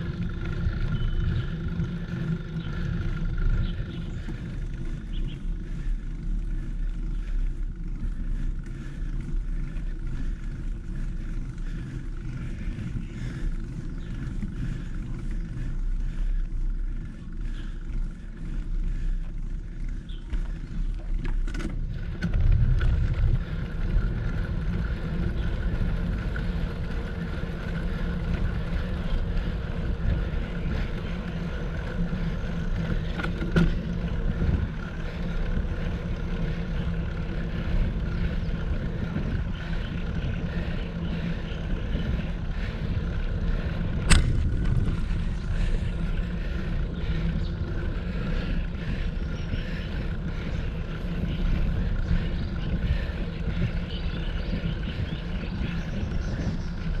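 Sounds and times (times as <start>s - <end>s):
bicycle tyre and road noise: 0.0s - 57.0s
wind on microphone: 41.6s - 48.0s.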